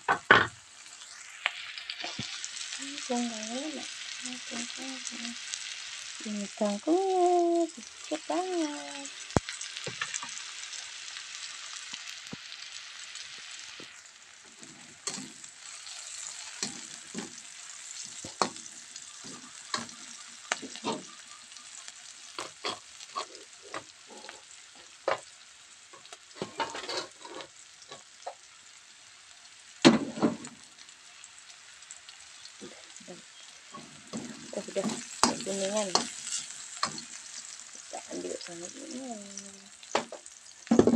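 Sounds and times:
food sizzling in hot oil: 0:00.0 - 0:40.9
spatula scraping and tapping pan: 0:09.3 - 0:10.4, 0:14.5 - 0:25.3, 0:26.0 - 0:28.4, 0:33.7 - 0:37.2.

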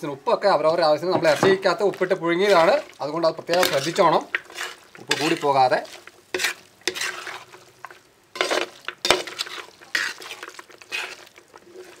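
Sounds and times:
spatula scraping metal pot: 0:02.4 - 0:07.6, 0:08.3 - 0:12.0.

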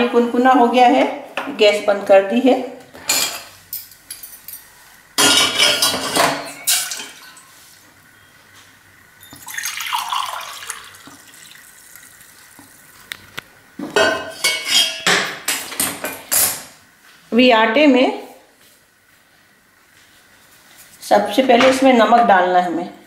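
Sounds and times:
water pouring into tumbler: 0:09.3 - 0:13.2.

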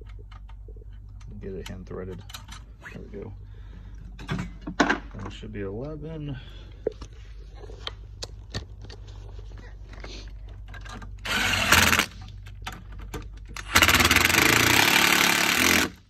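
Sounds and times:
cordless power tool driving bolts: 0:10.9 - 0:12.3, 0:13.5 - 0:16.0.

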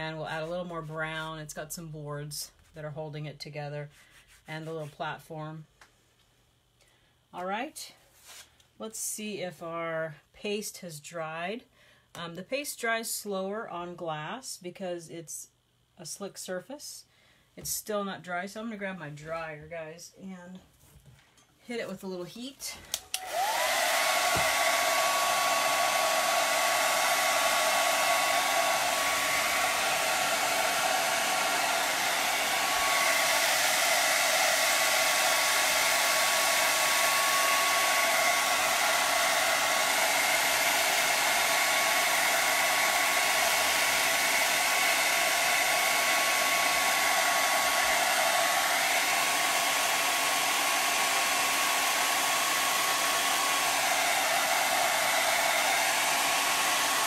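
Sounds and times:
blow dryer running: 0:22.9 - 0:57.0.

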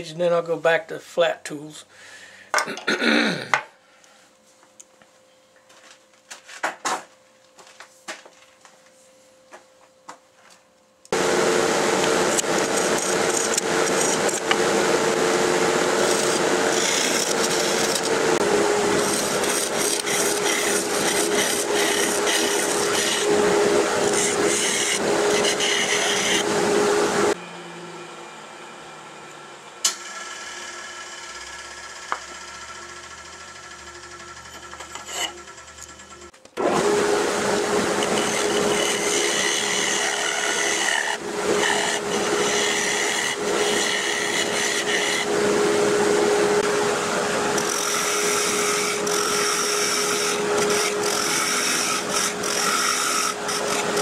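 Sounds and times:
wood lathe humming: 0:11.1 - 0:54.0
lathe tool cutting hiss: 0:11.2 - 0:27.4, 0:36.8 - 0:54.0.

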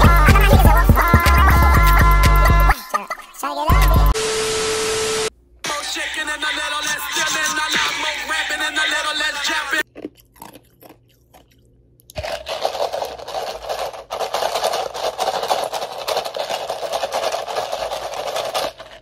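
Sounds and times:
ice being chewed crunching: 0:09.8 - 0:19.0.

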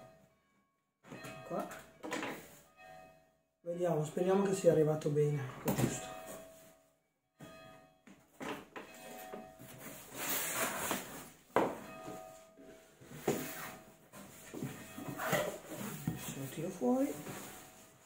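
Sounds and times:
cardboard rustling and scraping: 0:09.7 - 0:11.4, 0:13.0 - 0:18.0.

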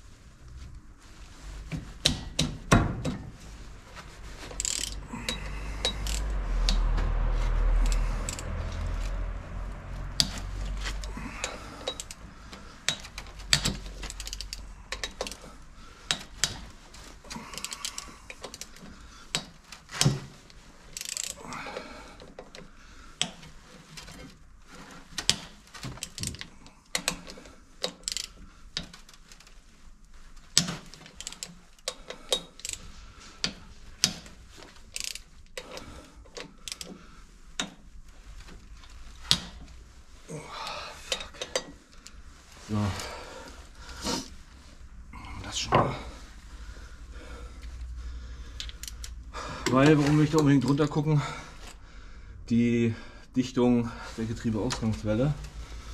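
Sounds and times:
low rumbling noise: 0:02.7 - 0:16.0
hand ratchet clicking: 0:04.4 - 0:07.0, 0:07.7 - 0:09.2, 0:10.2 - 0:20.2, 0:20.9 - 0:21.4, 0:25.2 - 0:29.5, 0:30.5 - 0:37.0, 0:48.5 - 0:50.0.

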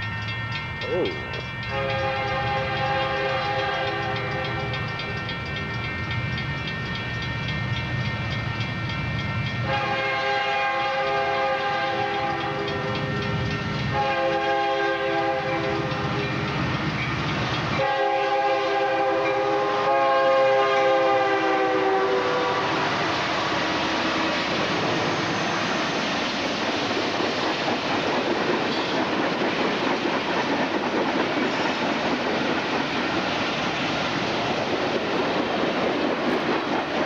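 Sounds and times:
locomotive engines rumbling: 0:00.0 - 0:37.0
train air horn blasts: 0:01.7 - 0:04.6, 0:09.6 - 0:12.7, 0:13.9 - 0:16.0, 0:17.8 - 0:23.1.

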